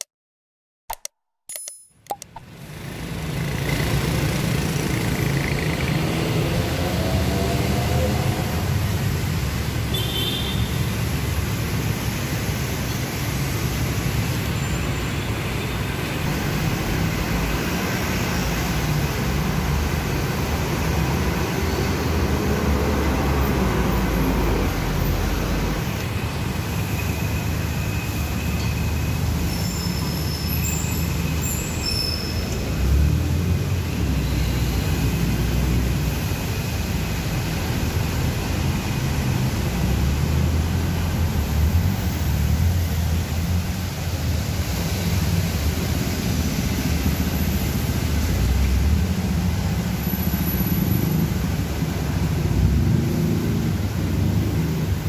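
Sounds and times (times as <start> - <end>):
traffic engine rumble: 2.4 - 55.0
vehicle accelerating: 2.6 - 9.2, 16.3 - 26.0, 32.6 - 55.0
tyres hissing on wet road: 2.9 - 55.0.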